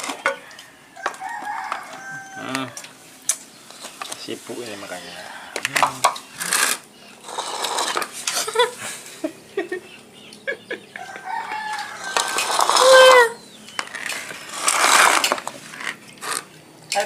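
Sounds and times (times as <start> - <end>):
rooster crowing: 0.4 - 2.9, 5.0 - 5.8, 10.9 - 13.4.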